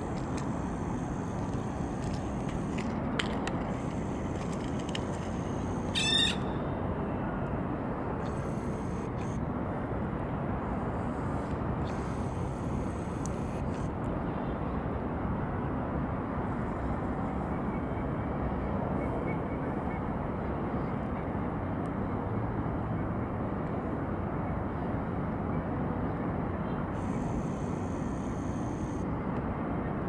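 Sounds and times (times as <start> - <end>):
distant city traffic rumble: 0.0 - 30.0
harsh bird call: 5.9 - 6.6.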